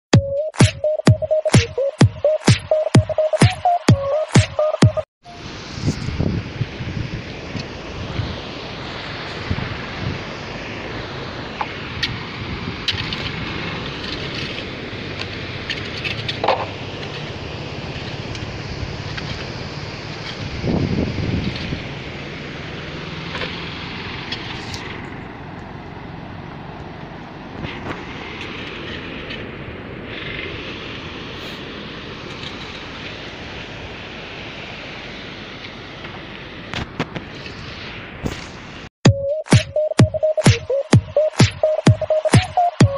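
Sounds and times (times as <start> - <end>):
sea surf: 0.4 - 42.9
wind rumbling on microphone: 5.3 - 38.9.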